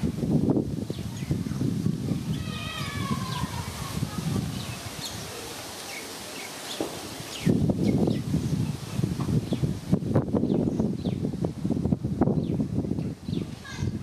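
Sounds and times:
wind buffeting microphone: 0:00.0 - 0:05.8, 0:06.7 - 0:14.0
wind rustling leaves: 0:00.0 - 0:14.0
birds chirping: 0:02.2 - 0:09.8, 0:10.4 - 0:11.3, 0:12.4 - 0:14.0.

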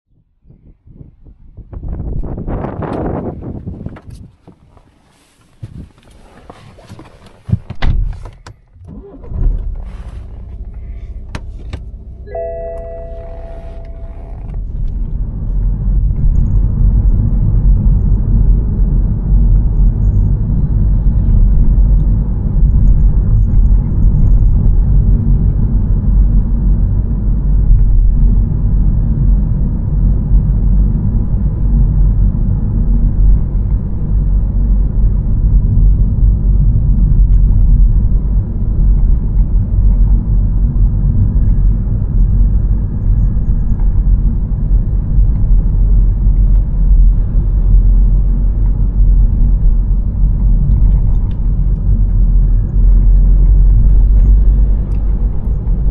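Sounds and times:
engine and tyre rumble: 0:00.5 - 0:55.9
car engine starting and idling: 0:06.1 - 0:55.9
car door clunks and clicks: 0:07.3 - 0:09.8
multi-tone warning chime: 0:12.3 - 0:14.4.

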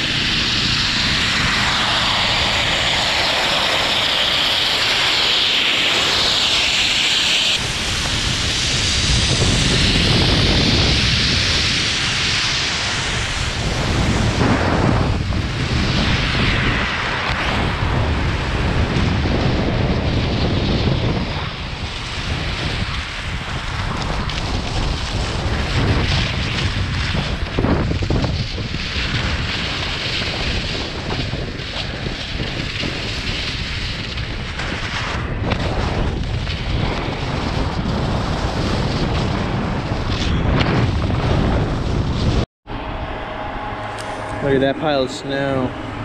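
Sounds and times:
skis scraping over snow: 0:00.0 - 0:42.4
wind buffeting microphone: 0:00.0 - 0:46.0.

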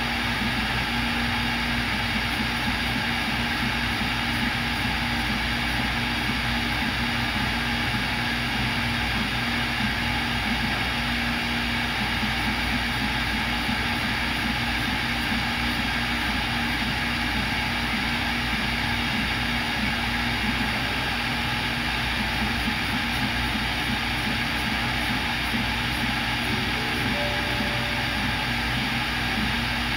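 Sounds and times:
router spindle hum and hiss: 0:00.0 - 0:29.9
low machine tone: 0:26.0 - 0:29.9.

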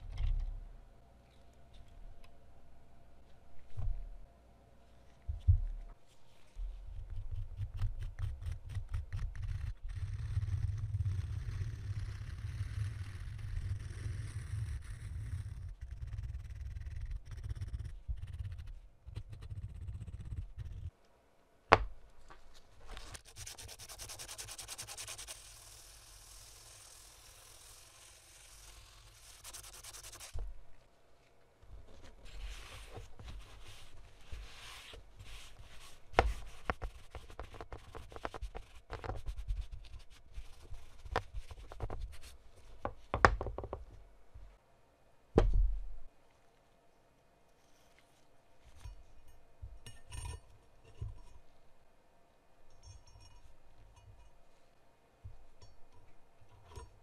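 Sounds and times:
fine hissing scraping: 0:23.2 - 0:30.4
sanding strokes on metal: 0:23.2 - 0:30.4.

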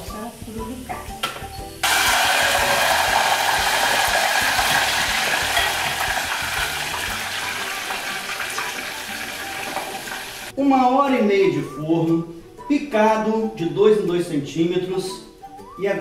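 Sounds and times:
pork sizzling in hot fat: 0:00.0 - 0:10.6.

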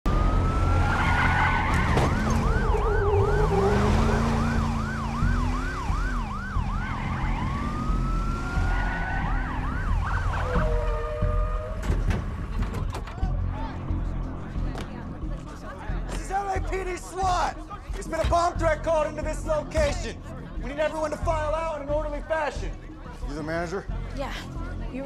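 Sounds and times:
police siren wailing and yelping: 0:00.1 - 0:11.8.

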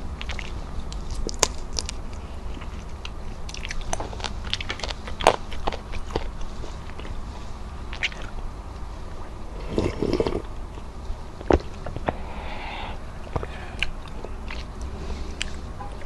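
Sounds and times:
wet chewing clicks: 0:00.2 - 0:15.7
sipping broth: 0:09.5 - 0:10.5
sharp mouth clicks: 0:11.5 - 0:15.6.

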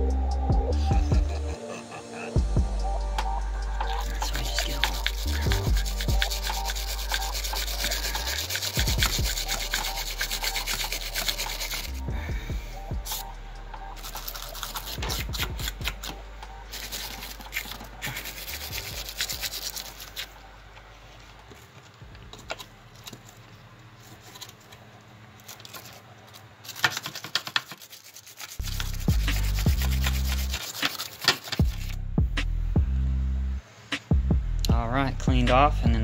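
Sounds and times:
hand file scraping metal: 0:04.0 - 0:12.1, 0:14.0 - 0:20.3, 0:26.7 - 0:31.7.

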